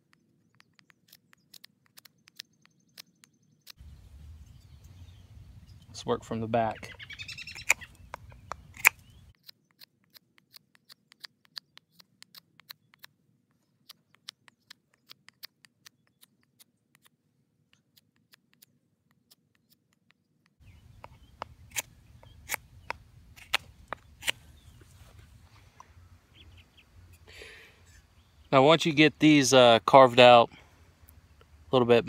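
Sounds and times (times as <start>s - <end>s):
knife carving wood: 0.0s - 3.8s, 7.5s - 24.6s.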